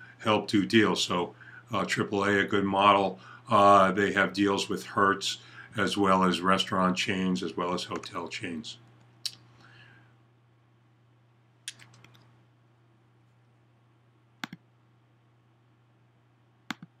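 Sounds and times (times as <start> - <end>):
faint steady low hum: 0.0 - 17.0
computer mouse clicks: 11.7 - 12.3, 14.4 - 14.6, 16.7 - 17.0.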